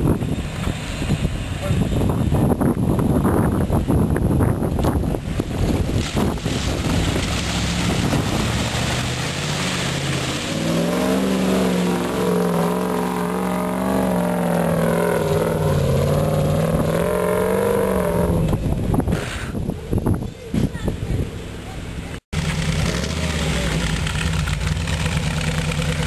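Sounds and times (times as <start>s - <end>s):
tyres spinning in mud: 5.1s - 17.6s
engine at high revs: 6.7s - 19.6s, 22.4s - 26.0s.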